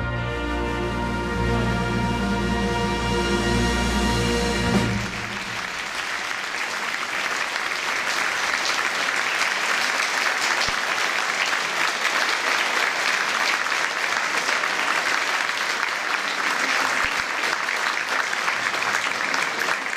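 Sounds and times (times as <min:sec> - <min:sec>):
audience applauding: 0:04.8 - 0:19.9.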